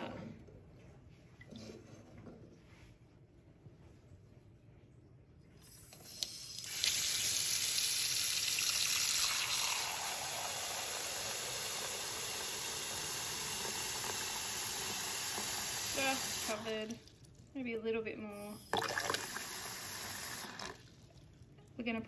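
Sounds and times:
tap water running into saucepan: 6.6s - 17.1s, 18.7s - 20.8s.

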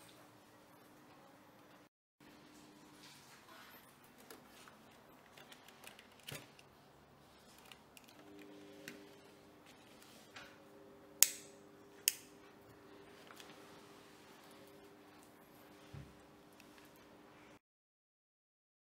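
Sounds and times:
lamp switch clicks: 11.2s - 12.3s.

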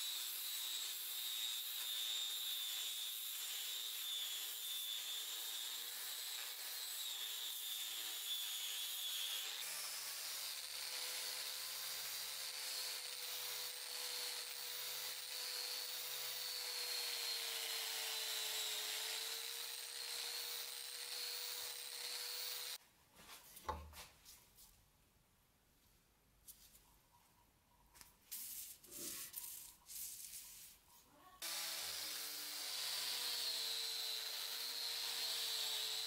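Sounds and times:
angle grinder whine: 13.0s - 22.8s.

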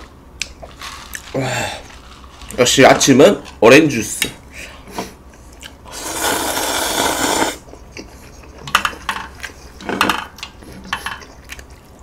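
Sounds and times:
slurping noodles: 5.9s - 7.7s.

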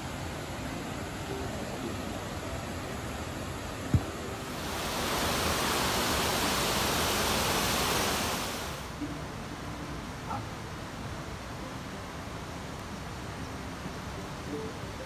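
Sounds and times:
flowing water: 0.0s - 15.0s
waterfall rushing: 0.0s - 15.0s.

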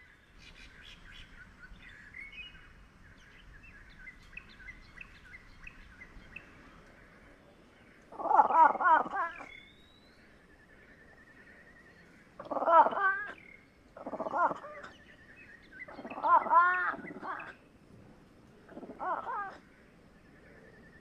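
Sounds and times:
wild cat calling: 8.0s - 9.8s, 12.3s - 17.7s, 18.6s - 19.9s.

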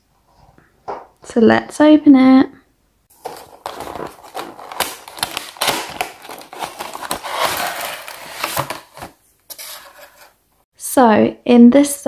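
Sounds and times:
cardboard box being opened: 3.1s - 10.3s
plastic insert crinkling: 3.1s - 10.3s.

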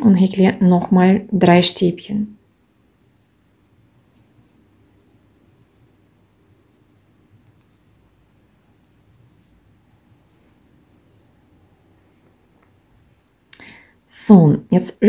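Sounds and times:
crochet hook rustling yarn: 0.6s - 14.4s.

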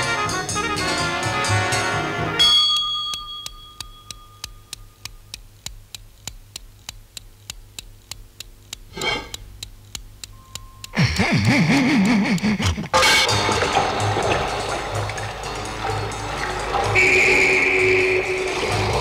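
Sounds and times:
clock ticking: 2.4s - 15.5s.

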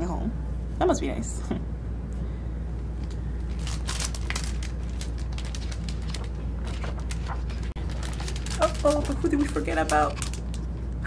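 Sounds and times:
steady low hum: 0.0s - 11.0s
paper pages rustling: 3.0s - 10.8s.

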